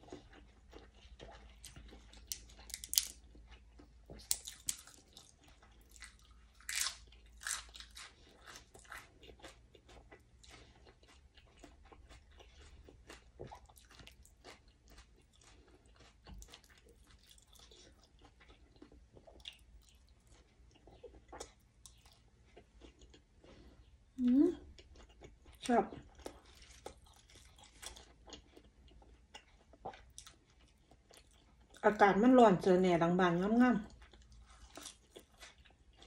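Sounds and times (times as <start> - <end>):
person chewing food: 0.0 - 31.8, 33.8 - 36.0
crunching raw herbs: 2.2 - 3.2, 5.9 - 9.0.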